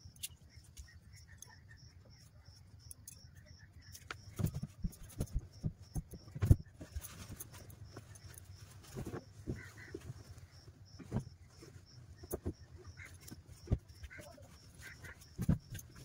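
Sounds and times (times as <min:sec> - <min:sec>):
handling knocks and thumps: 0:03.9 - 0:16.0.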